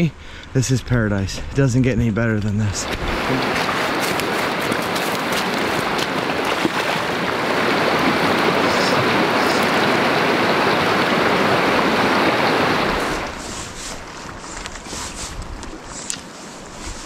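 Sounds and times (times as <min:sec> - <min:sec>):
river water rushing over gravel: 0:02.7 - 0:14.9.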